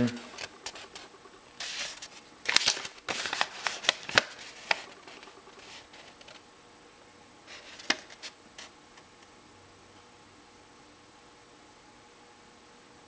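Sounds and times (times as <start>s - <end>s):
paper rustling and crackling: 0.3s - 6.4s, 7.5s - 8.7s.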